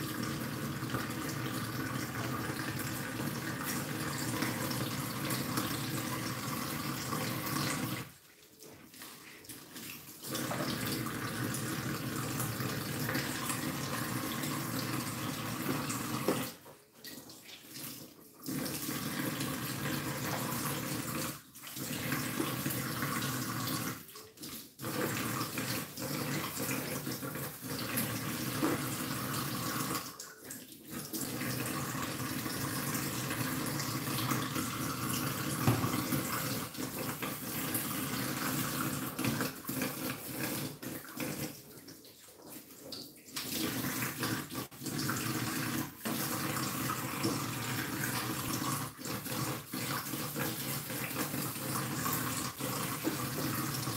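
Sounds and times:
dishes being washed: 0.0 - 53.9
tap running into steel sink: 35.5 - 36.4.

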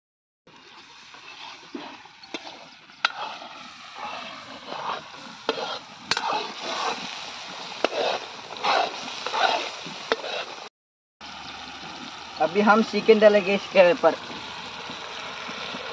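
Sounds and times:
curry sizzling: 0.5 - 15.9
ladle scraping metal pan: 1.0 - 10.7.

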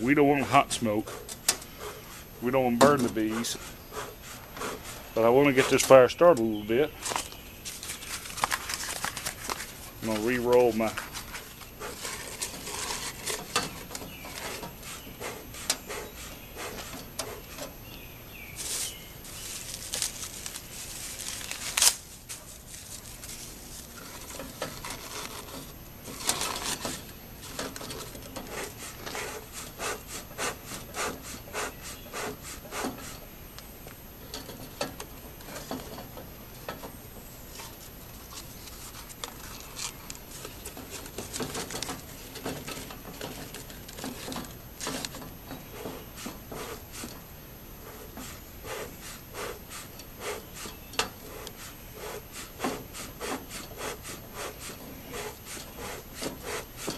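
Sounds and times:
cardboard and paper crinkling: 7.0 - 13.5, 18.5 - 28.2, 37.5 - 45.2.

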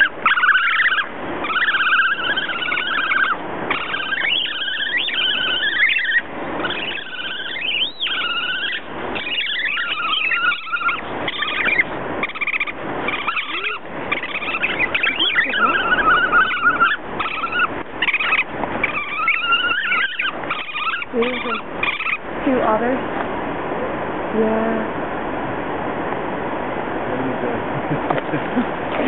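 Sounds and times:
otters squealing: 0.0 - 22.8.

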